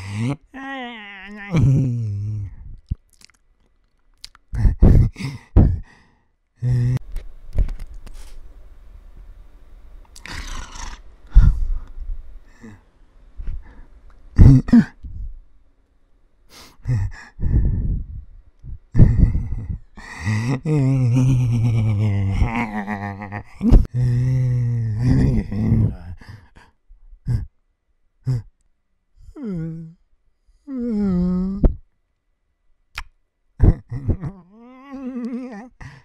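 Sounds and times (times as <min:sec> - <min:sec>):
man making wordless vocal sounds: 0:00.0 - 0:03.4, 0:04.2 - 0:05.9, 0:06.6 - 0:07.1, 0:14.4 - 0:15.1, 0:18.7 - 0:27.5, 0:28.2 - 0:28.6, 0:29.2 - 0:30.0, 0:30.7 - 0:31.8, 0:33.0 - 0:36.0.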